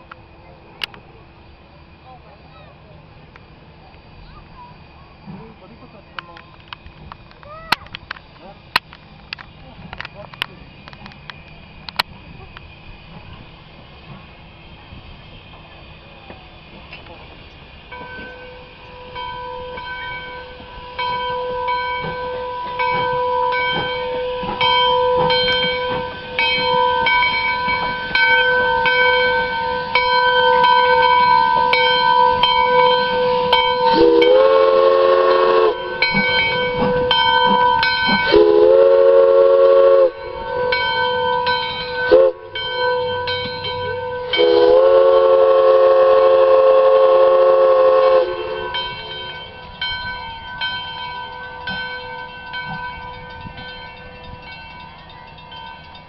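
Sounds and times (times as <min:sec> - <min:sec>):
steam locomotive chime whistle: 0:13.9 - 0:56.0
bell ringing: 0:35.8 - 0:38.4, 0:40.1 - 0:44.6, 0:48.4 - 0:56.0.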